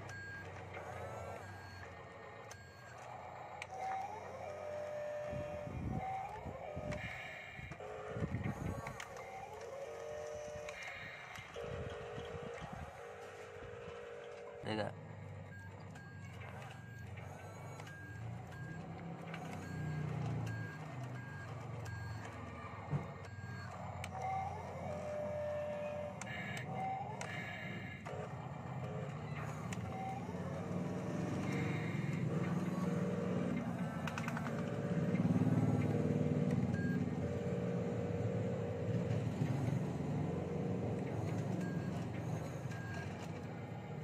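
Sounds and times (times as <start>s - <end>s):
toy truck motor driving over dirt: 0.0s - 14.8s
low motor hum: 0.0s - 44.0s
reversing alarm beeping: 0.0s - 44.0s
steady motor whine: 0.0s - 44.0s.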